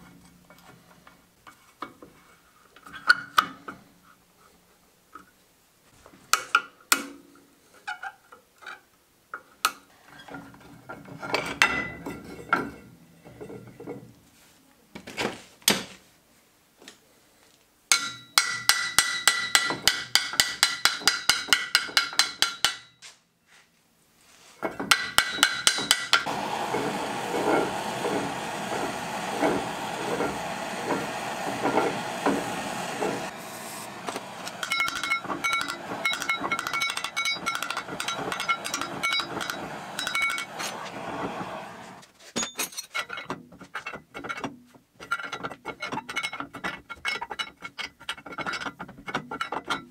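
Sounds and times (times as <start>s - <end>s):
butane torch hissing: 26.2s - 42.0s.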